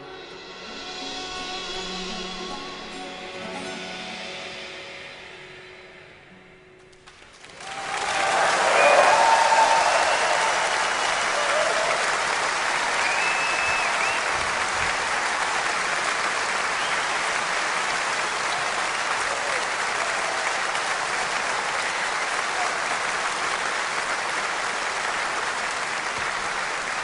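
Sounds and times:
large audience applauding: 7.0s - 27.0s.

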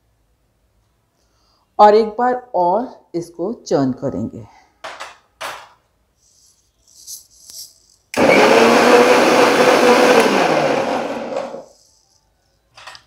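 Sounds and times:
mixer grinder motor blending: 8.2s - 11.8s.

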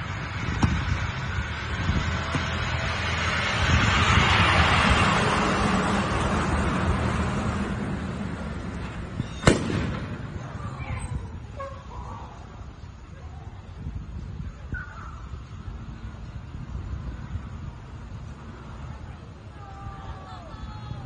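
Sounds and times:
rushing noise: 0.0s - 11.4s
sharp bang: 9.4s - 10.4s.

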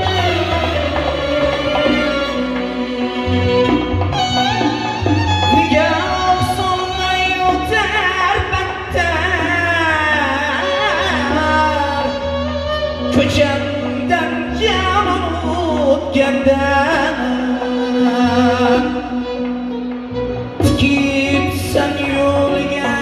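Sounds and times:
low keyboard bass notes: 0.0s - 23.0s
man singing ornamented phrases: 20.6s - 23.0s.

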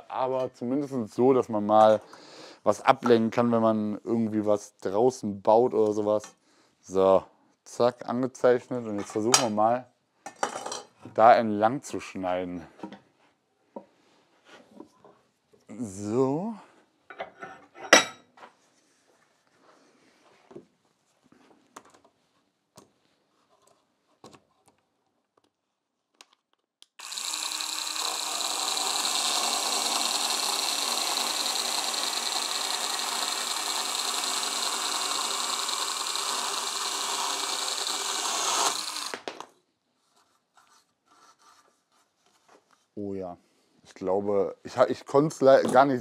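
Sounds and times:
chainsaw cutting timber: 27.0s - 39.5s.

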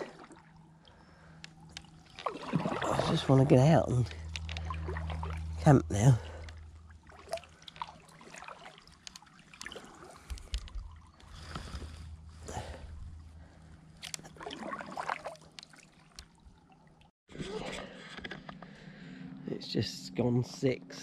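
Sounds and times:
paddle splashing water: 0.0s - 0.7s, 1.8s - 3.5s, 4.1s - 12.0s, 14.0s - 17.0s
water trickling off paddle: 0.0s - 12.1s, 13.9s - 17.1s.

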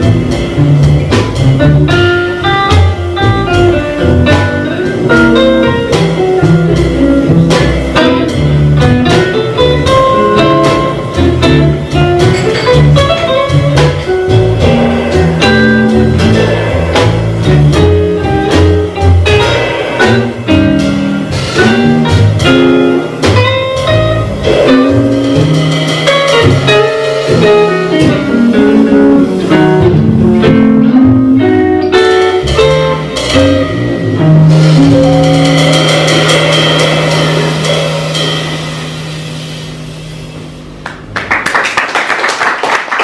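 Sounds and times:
drum kit with cymbals: 0.0s - 41.2s
upright double bass: 0.0s - 41.2s
electric jazz guitar: 0.0s - 41.4s.

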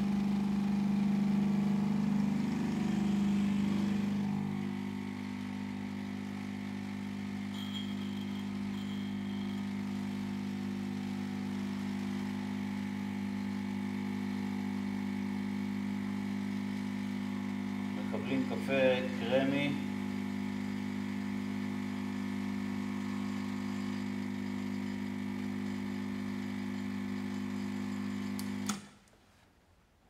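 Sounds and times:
espresso machine pump buzzing: 0.0s - 28.9s.

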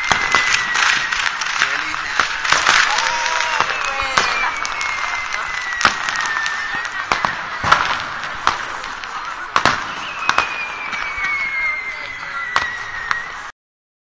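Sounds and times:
high whistle falling in pitch: 0.0s - 1.4s, 2.8s - 7.9s, 9.7s - 13.5s
constant crackle: 0.0s - 9.9s
fireworks bangs and pops: 0.0s - 13.6s.

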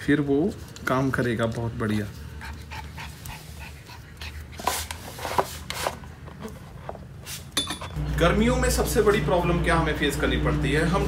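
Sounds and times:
puppy panting: 2.2s - 5.0s.

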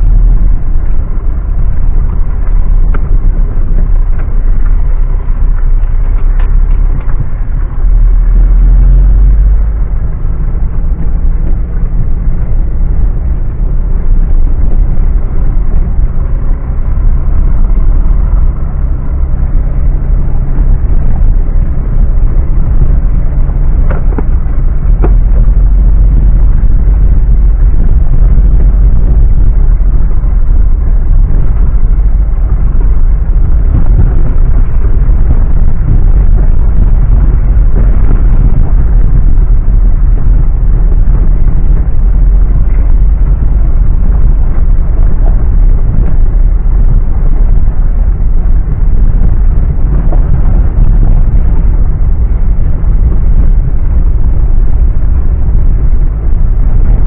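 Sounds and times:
vehicle engine rumbling off-road: 0.0s - 57.0s.

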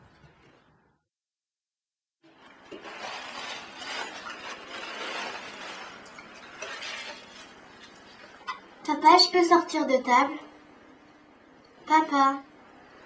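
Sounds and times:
forks scraping on plates: 2.3s - 8.6s.

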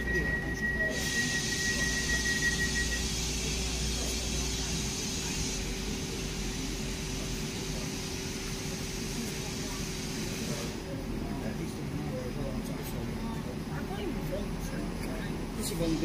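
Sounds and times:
high steady tone: 0.0s - 3.8s
diesel train engine humming: 0.0s - 16.0s
air hissing: 0.8s - 10.8s.

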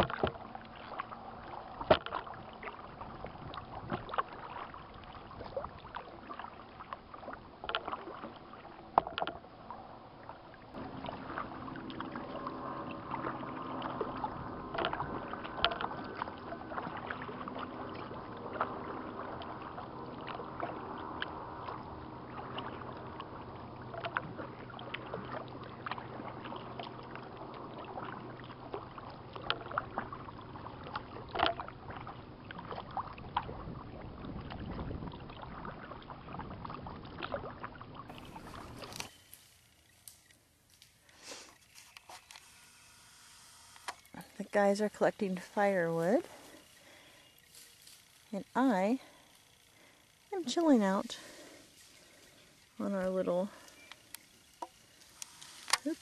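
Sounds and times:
paddle knocking against hull: 0.0s - 1.0s, 1.8s - 2.3s, 8.9s - 9.4s, 30.8s - 37.6s
paddle splashing water: 0.0s - 56.0s
steady multi-pitch hum: 8.5s - 34.2s, 41.8s - 56.0s.

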